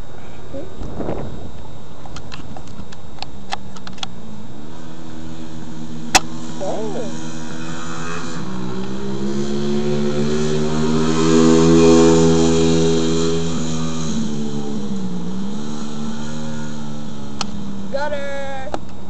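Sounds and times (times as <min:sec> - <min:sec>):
motorbike engine passing by: 0:04.2 - 0:18.1.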